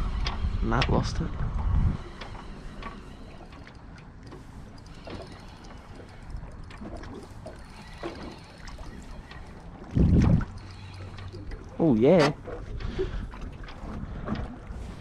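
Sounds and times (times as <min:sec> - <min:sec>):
low rumble: 0:00.0 - 0:02.8, 0:09.7 - 0:11.5
water lapping against boat: 0:00.0 - 0:15.0
faint ticks: 0:02.0 - 0:13.0.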